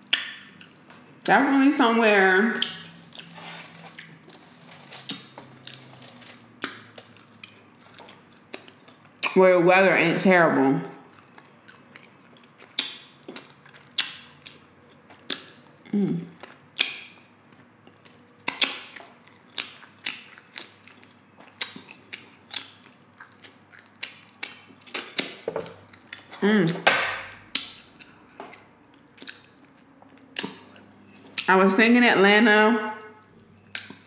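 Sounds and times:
wet mouth clicks and lip smacks: 0.1 - 0.7, 12.7 - 14.6
person humming briefly: 15.9 - 16.3.

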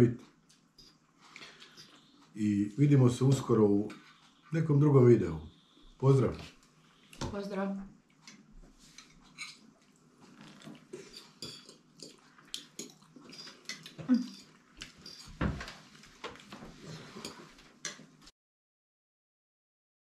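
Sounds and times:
forks clinking on plates: 11.0 - 15.7.

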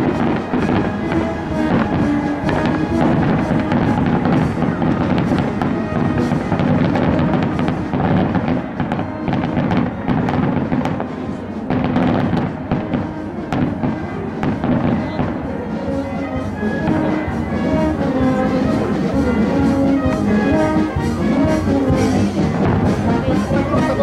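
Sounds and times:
fireworks bangs and crackles: 0.0 - 24.0
music playing: 0.0 - 24.0.

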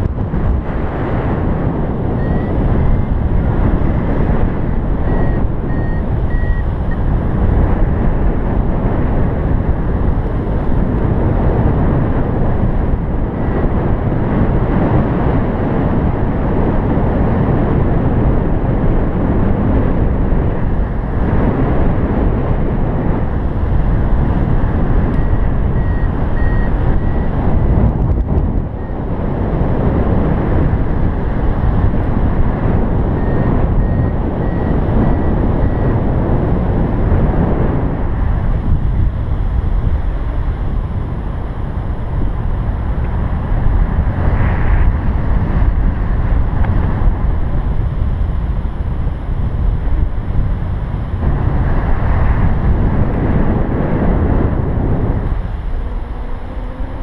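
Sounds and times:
wind rushing over microphone: 0.0 - 57.0
faint high beeps: 2.1 - 3.2, 4.7 - 7.1, 25.1 - 27.4, 33.1 - 36.0.

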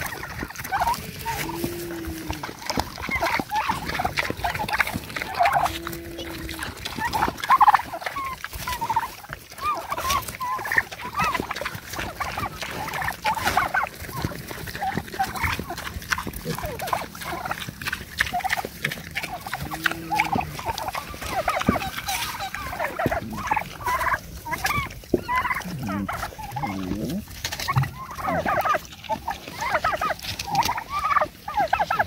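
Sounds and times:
poultry clucking and calling: 0.0 - 32.0.

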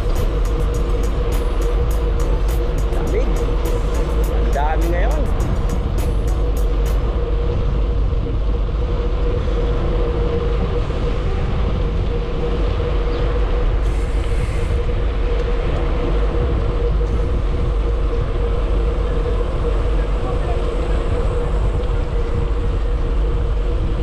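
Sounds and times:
steady hum: 0.0 - 24.0
wind rushing over microphone: 0.0 - 24.0.

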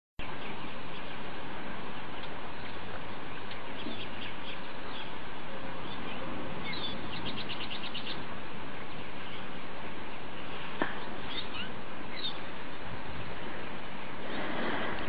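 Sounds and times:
birds chirping: 0.2 - 15.0
steady background hiss: 0.2 - 15.0
bird trill: 5.8 - 8.3, 11.1 - 12.5.

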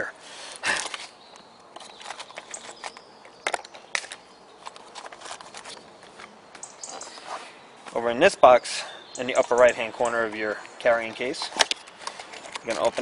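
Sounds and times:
light clicks of accessories: 0.6 - 8.0, 9.2 - 13.0
packaging rustling: 1.8 - 7.5.

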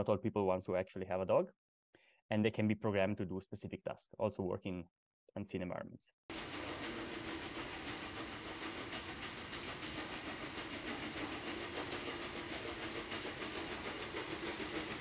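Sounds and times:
fast even pulsing: 6.3 - 15.0
robot joint motors whirring: 6.3 - 15.0.

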